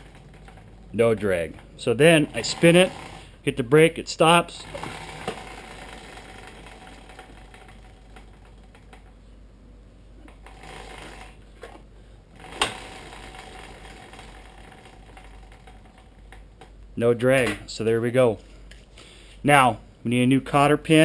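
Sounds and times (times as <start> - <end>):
wheel spinning with light ticking: 0.0 - 3.4, 4.3 - 9.2, 10.3 - 11.4, 12.4 - 16.5.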